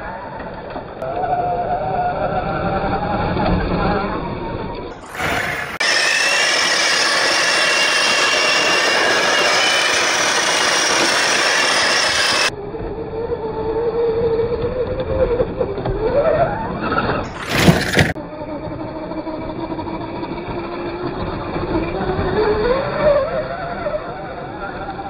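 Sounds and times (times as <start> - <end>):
electric motor whine: 2.9 - 16.0
loud steady rushing noise: 5.0 - 12.5.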